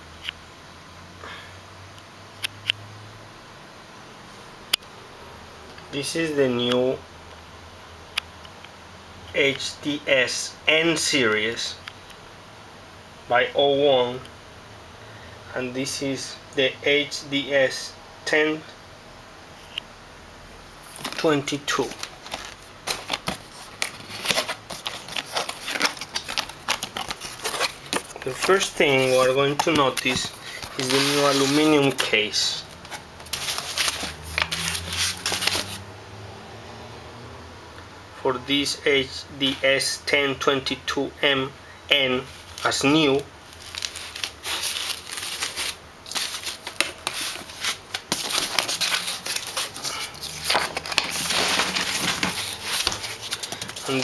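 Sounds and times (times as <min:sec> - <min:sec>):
handling noise at microphone: 0:20.8 - 0:35.8, 0:42.2 - 0:54.0
cardboard box rustling and crackling: 0:20.9 - 0:32.0, 0:32.8 - 0:35.8, 0:43.5 - 0:54.0.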